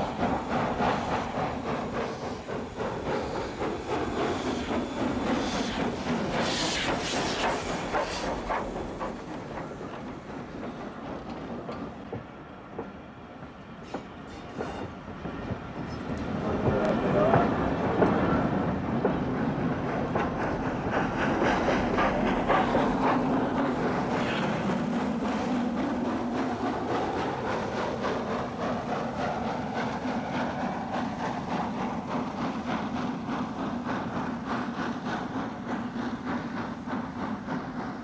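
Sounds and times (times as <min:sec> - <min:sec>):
steam locomotives running: 0:00.0 - 0:38.0
train wheels clicking over rail joints: 0:00.0 - 0:38.0.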